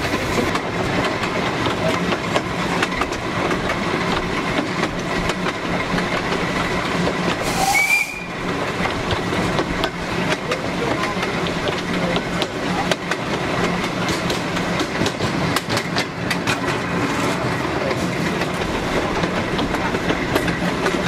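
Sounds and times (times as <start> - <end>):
steam locomotive running: 0.0 - 21.0
train wheels clattering on rails: 0.0 - 21.0
train whistle blast: 7.4 - 8.4.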